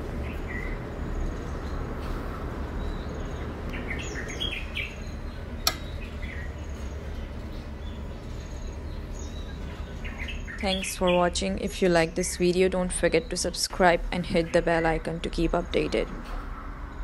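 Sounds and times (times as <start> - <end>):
small birds chirping: 0.0 - 16.1
steady low hum: 0.0 - 17.0
sharp click: 5.7 - 5.9.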